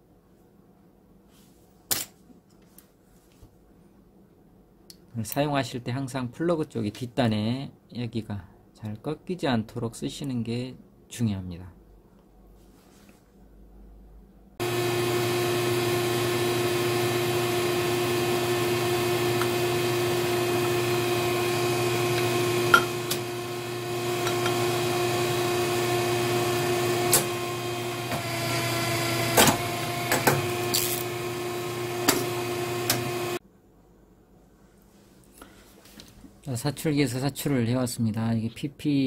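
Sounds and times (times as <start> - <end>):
moulding machine humming: 14.6 - 33.4.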